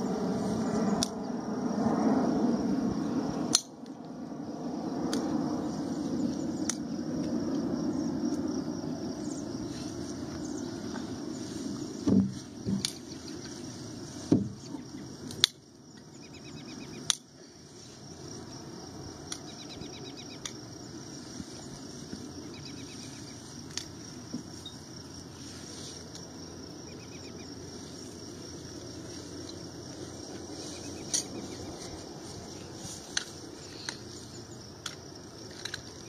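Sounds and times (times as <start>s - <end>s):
dull thumps: 12.0s - 12.9s
faint chirping trills: 16.0s - 17.1s, 26.8s - 27.6s.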